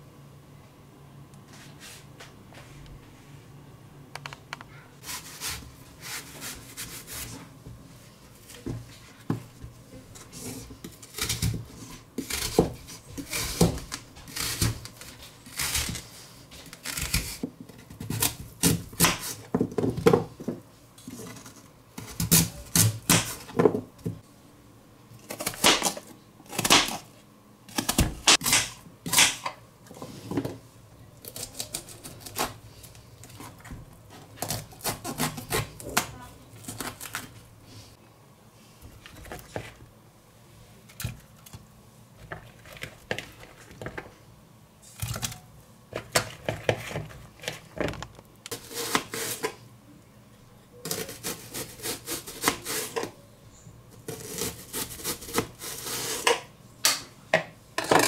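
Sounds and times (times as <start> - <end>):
knife cutting cauliflower: 48.5 - 49.6, 50.8 - 53.1, 54.1 - 56.4.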